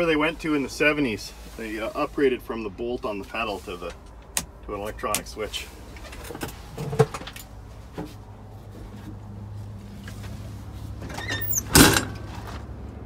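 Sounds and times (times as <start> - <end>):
truck door squeaking and shutting: 6.0 - 7.3, 11.0 - 12.5.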